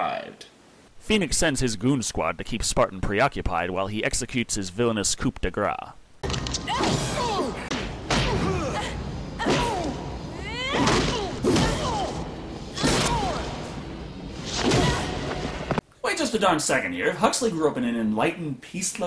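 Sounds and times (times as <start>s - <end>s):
shouts and grunts: 6.7s - 13.7s, 14.6s - 15.3s
punch and kick impacts: 9.4s - 10.0s, 10.7s - 13.7s, 14.4s - 15.8s.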